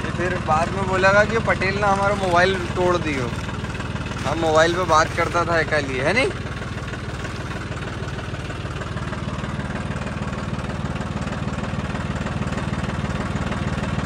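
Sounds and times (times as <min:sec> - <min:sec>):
tractor diesel engine running: 0:00.0 - 0:14.0.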